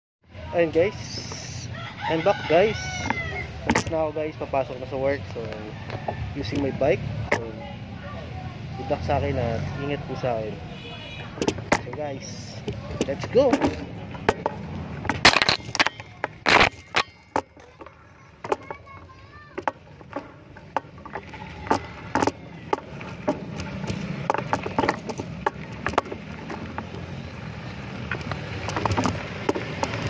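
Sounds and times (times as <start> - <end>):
street noise: 0.2 - 30.0
low rumble of bicycle riding: 0.3 - 30.0.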